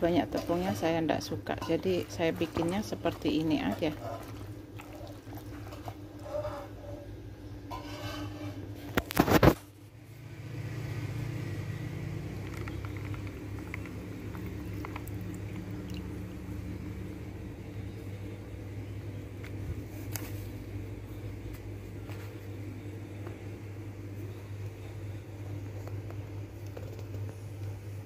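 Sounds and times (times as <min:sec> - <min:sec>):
steady low hum: 0:00.0 - 0:28.0
soft rustles in flour: 0:19.3 - 0:28.0.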